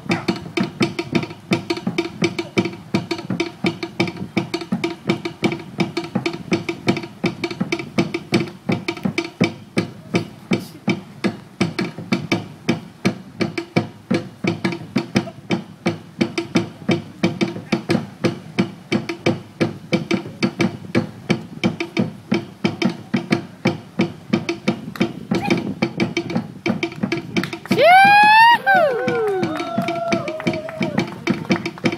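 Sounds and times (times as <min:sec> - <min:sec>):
fast drumming: 0:00.0 - 0:31.9
wooden percussion struck: 0:00.0 - 0:31.9.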